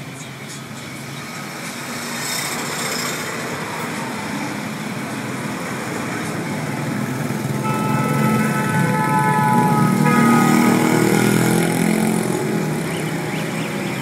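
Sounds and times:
truck engine: 0.0s - 14.0s
tyre and road noise: 0.0s - 14.0s
motorcycle engine: 2.5s - 14.0s
steady pitched tone: 7.6s - 14.0s.

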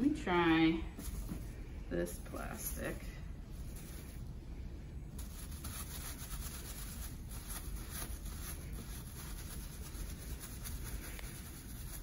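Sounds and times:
towel rubbing plastic bag: 5.2s - 12.0s.

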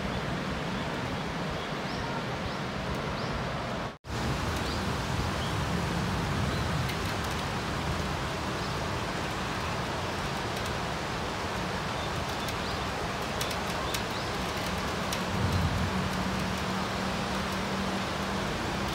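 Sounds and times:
rain hissing: 2.8s - 18.9s.

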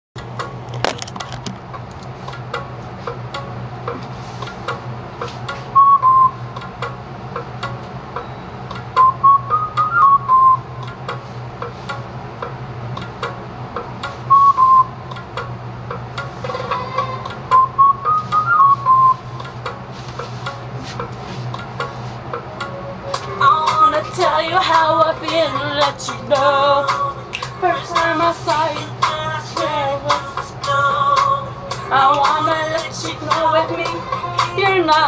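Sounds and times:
ticking beat: 0.2s - 35.0s
person whistling: 5.7s - 6.4s, 9.0s - 10.7s, 14.3s - 15.0s, 17.5s - 19.4s.

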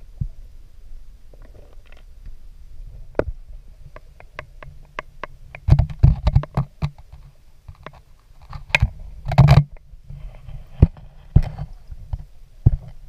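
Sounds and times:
underwater clicks and crackles: 3.1s - 13.0s.

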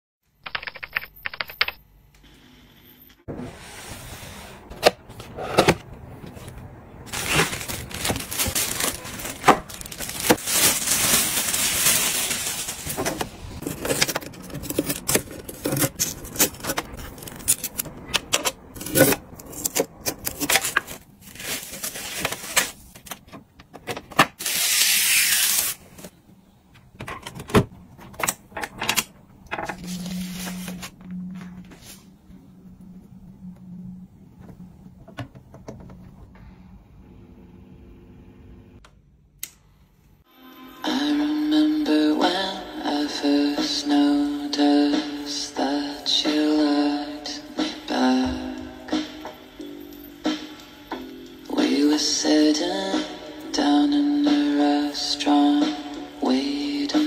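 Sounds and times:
plastic and foam wrapping rustling: 6.2s - 17.9s, 18.7s - 23.3s, 24.4s - 26.1s, 29.7s - 32.1s.

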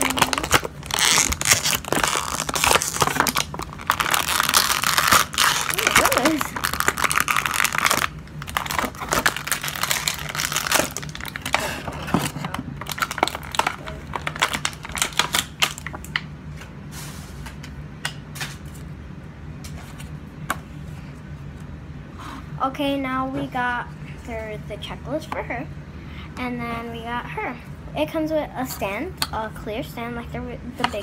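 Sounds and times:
plastic wrapper crinkling: 0.0s - 11.6s, 12.8s - 16.2s.

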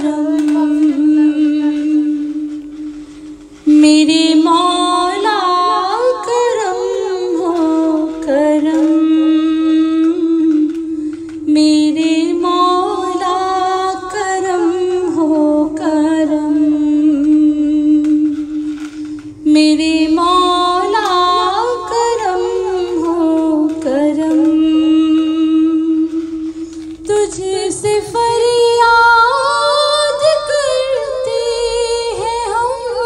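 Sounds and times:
person singing ornamented phrases: 3.9s - 10.8s.

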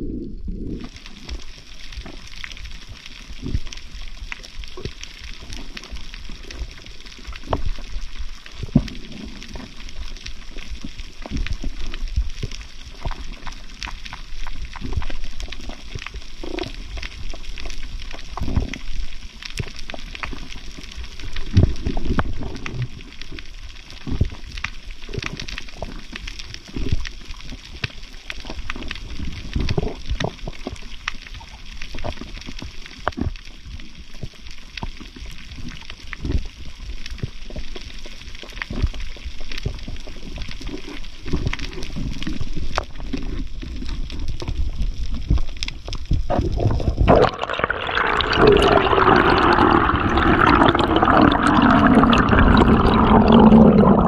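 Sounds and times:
rumble of surging water: 0.0s - 24.9s, 45.1s - 54.0s
sharp underwater clicks and crackles: 0.0s - 54.0s.

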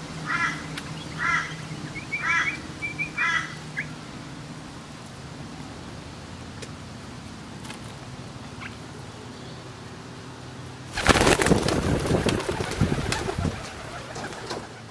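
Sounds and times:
pigeons cooing: 0.0s - 4.0s, 10.9s - 14.9s
wings flapping: 10.8s - 14.9s.

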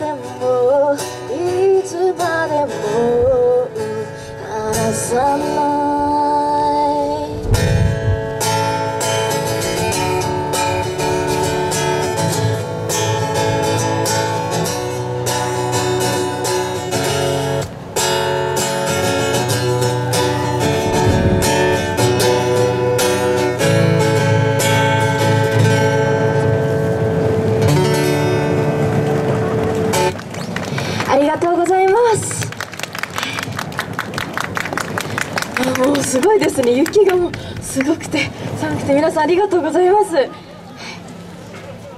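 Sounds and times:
acoustic guitar strumming chords: 0.0s - 30.2s.

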